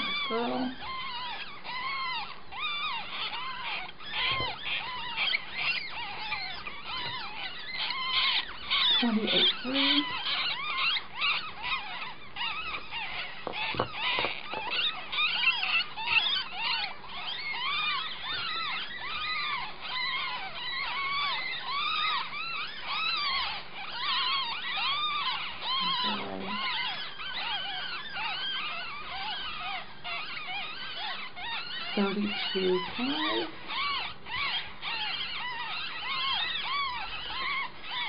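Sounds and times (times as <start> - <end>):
ferret kits squeaking: 0.0 - 38.0.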